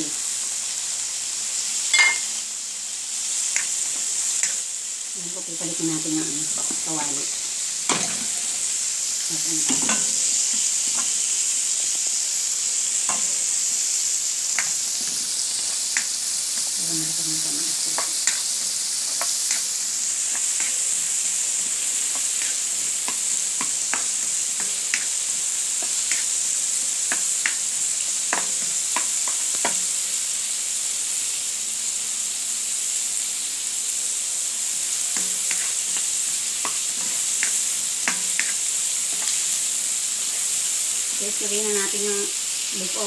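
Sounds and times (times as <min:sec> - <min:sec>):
hot oil sizzling: 0:00.0 - 0:43.0
spatula scraping a wok: 0:05.9 - 0:08.9, 0:09.6 - 0:11.4, 0:12.8 - 0:29.8, 0:34.7 - 0:41.1.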